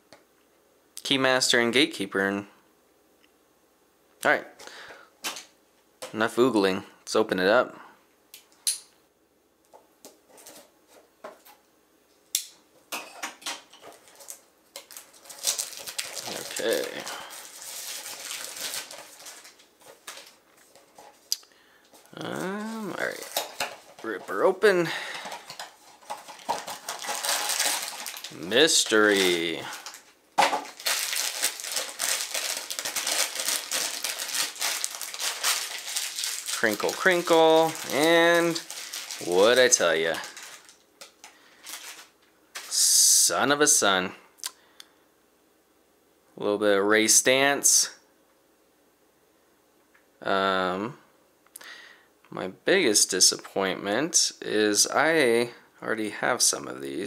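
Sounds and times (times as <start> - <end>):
plastic wrap crinkling: 13.6 - 43.1.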